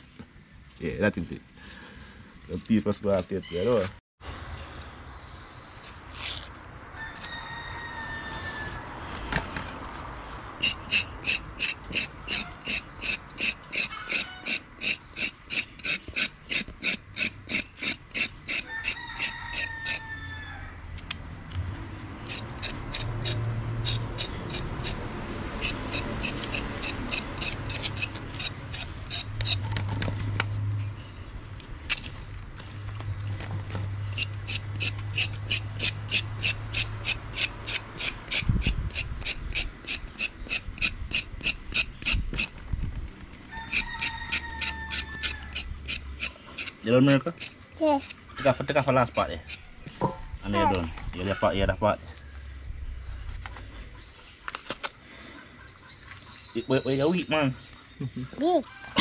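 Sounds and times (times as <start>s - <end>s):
knife scraping carrot skin: 5.7s - 6.7s, 10.6s - 20.1s, 22.2s - 29.6s, 34.1s - 42.5s, 43.6s - 49.8s.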